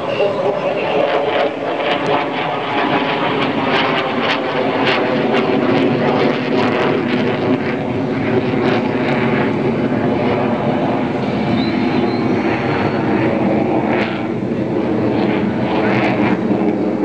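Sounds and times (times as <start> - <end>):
jet engine roar overhead: 0.0 - 17.0.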